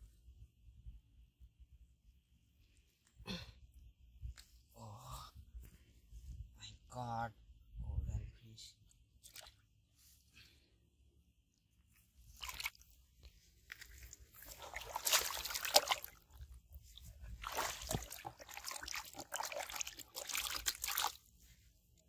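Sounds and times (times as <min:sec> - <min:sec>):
fish splashing in water: 0:13.8 - 0:16.3, 0:17.4 - 0:21.2.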